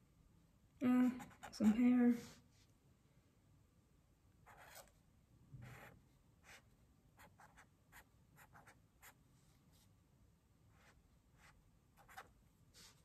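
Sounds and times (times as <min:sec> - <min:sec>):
pen scratching on paper: 0:01.2 - 0:01.8, 0:04.5 - 0:04.9, 0:05.6 - 0:06.6, 0:07.2 - 0:09.2, 0:10.8 - 0:13.0.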